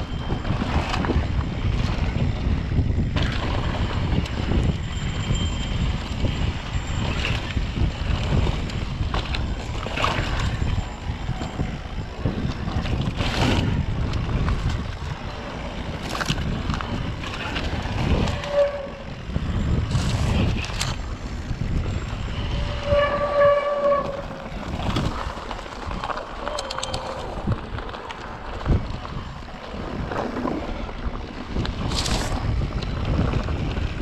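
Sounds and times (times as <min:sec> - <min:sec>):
wind buffeting microphone: 0:00.0 - 0:34.0
brake squeals: 0:15.1 - 0:27.6.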